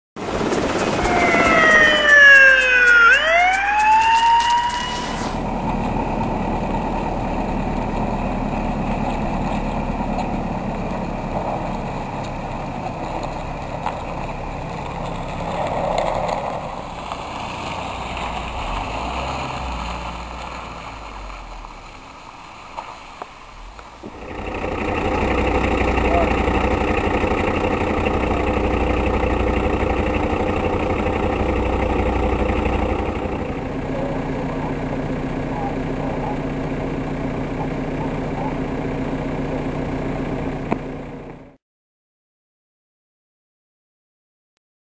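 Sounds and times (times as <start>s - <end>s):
siren-like wail: 0.3s - 5.6s.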